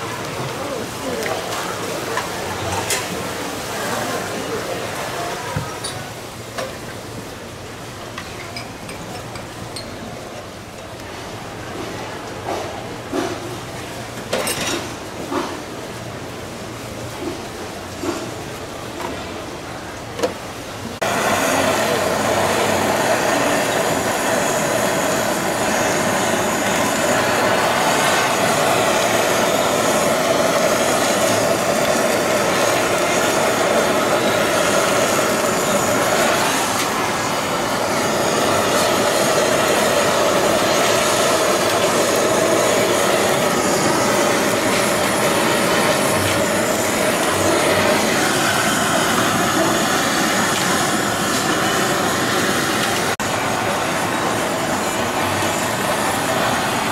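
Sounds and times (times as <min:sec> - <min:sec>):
gas burner roar: 0:00.0 - 0:08.3, 0:08.9 - 0:56.9
fish sizzling on griddle: 0:21.0 - 0:56.9.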